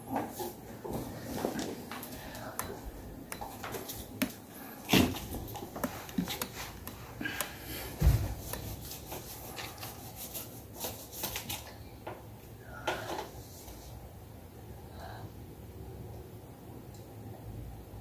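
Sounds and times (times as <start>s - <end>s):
heavy thumps: 2.5s - 8.9s
hands rubbing cardboard: 3.8s - 11.7s.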